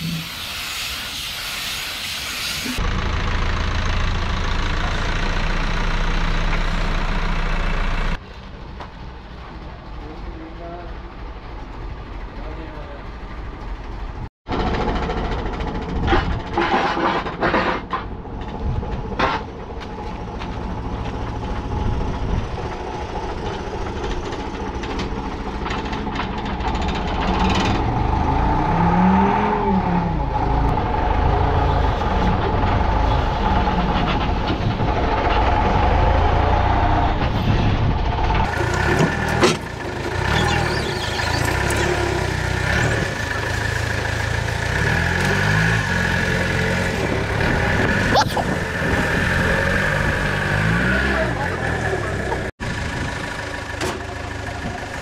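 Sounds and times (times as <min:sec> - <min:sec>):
forklift engine revving: 0:20.6 - 0:55.0.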